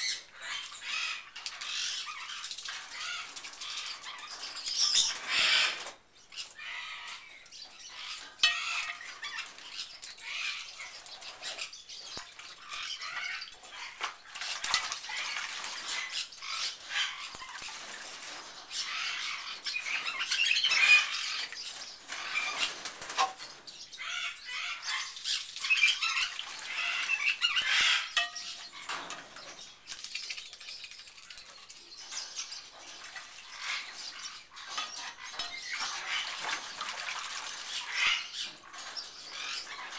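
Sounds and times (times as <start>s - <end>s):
bird splashing in water: 34.8s - 39.9s.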